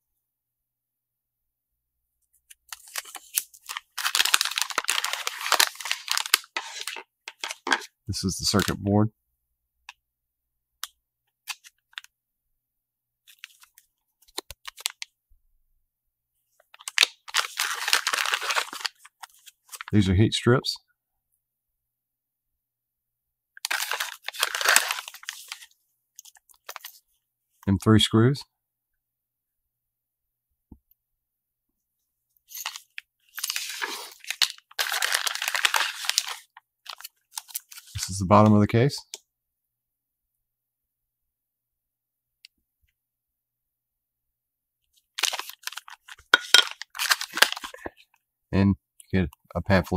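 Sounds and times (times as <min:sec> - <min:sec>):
plastic bags crinkling: 0:02.7 - 0:07.9, 0:16.8 - 0:19.9, 0:23.6 - 0:27.0, 0:32.5 - 0:37.9, 0:45.1 - 0:48.0.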